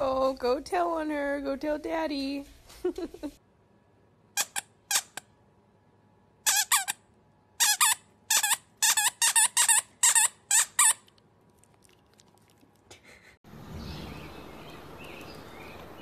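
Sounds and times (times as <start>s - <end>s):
squeaky toy squeaks: 4.4s - 5.2s, 6.4s - 7.0s, 7.6s - 11.1s.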